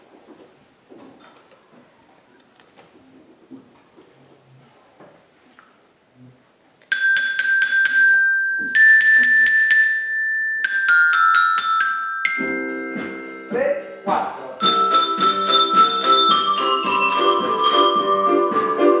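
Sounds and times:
metallophone notes struck with mallets: 6.9 - 19.0.

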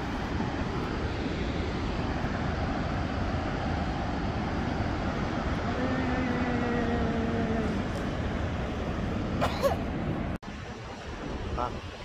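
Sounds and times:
waterfall roaring: 0.0 - 12.0.

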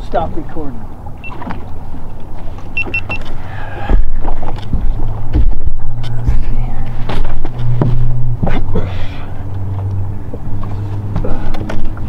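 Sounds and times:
boat motor humming: 0.0 - 12.0
high camera beeps: 2.8 - 3.2.

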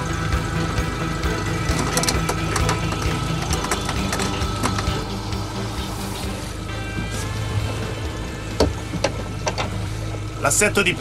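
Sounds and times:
boat engine hum: 0.0 - 11.0.

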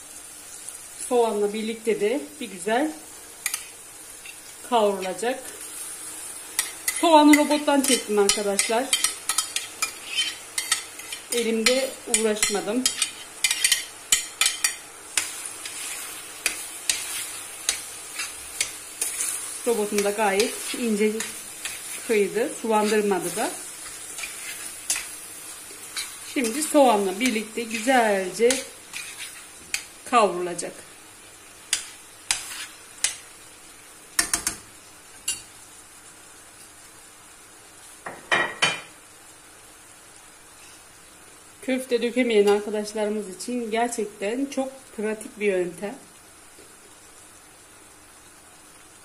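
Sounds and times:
meat and onion sizzling: 0.0 - 49.0
metal spoon scraping and clicking: 8.2 - 19.4, 23.8 - 25.1, 25.9 - 27.9, 28.5 - 29.9.

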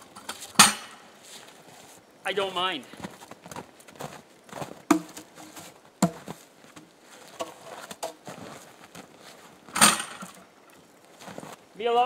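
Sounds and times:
boots crunching in snow: 1.2 - 9.6, 11.1 - 11.6
logs knocking: 4.9 - 8.3.

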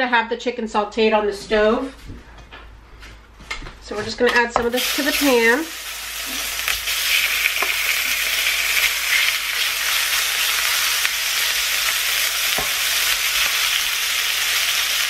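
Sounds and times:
chicken sizzling in hot oil: 4.7 - 15.0.

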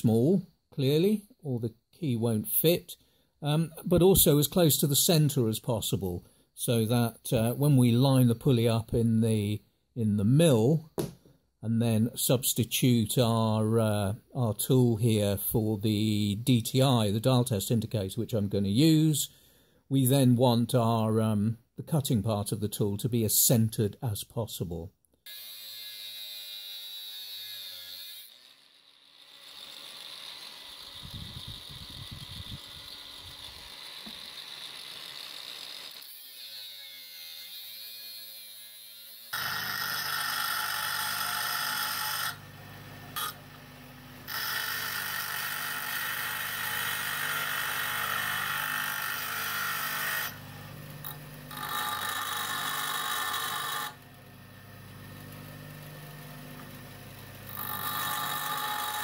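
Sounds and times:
angle grinder cutting steel: 25.3 - 43.6, 44.2 - 54.0, 55.1 - 59.0
bench grinder grinding: 25.3 - 59.0.

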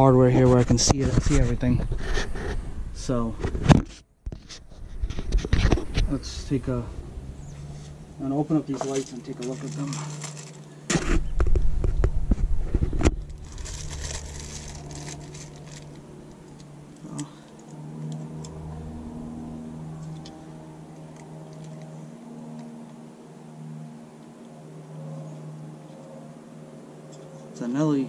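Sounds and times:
low steady hum: 0.0 - 28.0
plastic packaging rustling: 8.6 - 11.1, 12.8 - 17.7.

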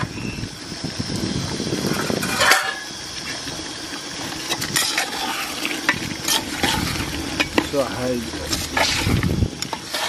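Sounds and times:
metal ladle scraping a pot: 2.0 - 2.9, 4.3 - 10.0.

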